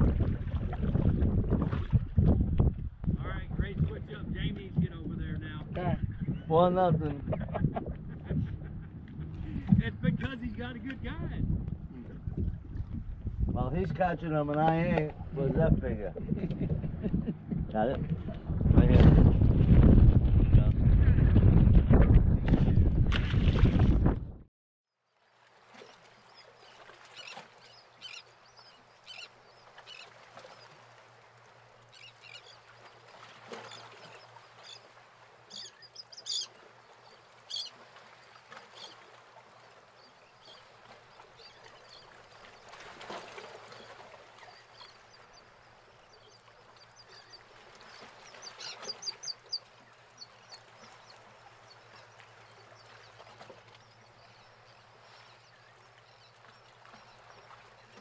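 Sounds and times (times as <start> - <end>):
birds chirping: 26.2 - 30.8, 31.8 - 34.9, 35.5 - 37.8, 43.7 - 58.0.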